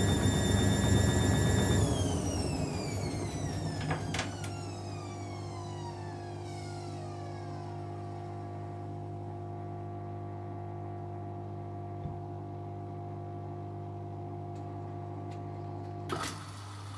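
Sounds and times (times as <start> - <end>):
washing machine motor whining: 0.0 - 10.3.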